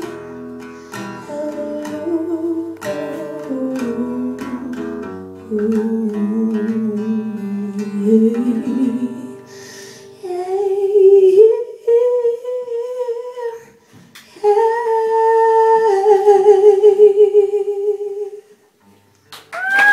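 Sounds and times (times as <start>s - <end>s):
woman humming: 5.5s - 9.5s, 14.4s - 18.4s.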